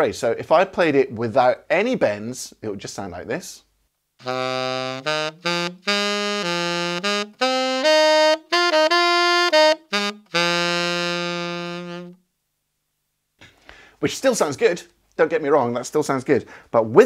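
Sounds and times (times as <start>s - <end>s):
tenor saxophone playing: 4.2s - 12.2s.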